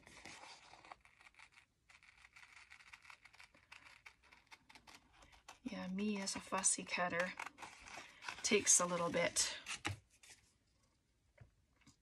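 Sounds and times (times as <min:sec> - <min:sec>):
scissors snipping paper: 0:00.3 - 0:05.6.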